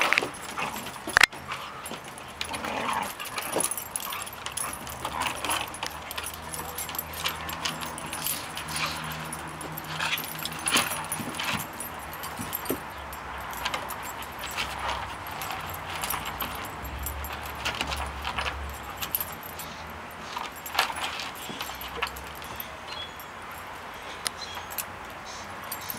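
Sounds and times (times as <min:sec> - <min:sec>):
dog collars and tags jingling: 0:00.0 - 0:25.9.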